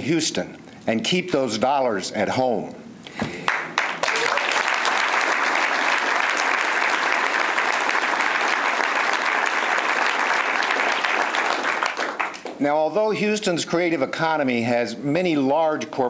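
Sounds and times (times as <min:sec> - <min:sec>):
crowd applauding: 0:03.4 - 0:12.6.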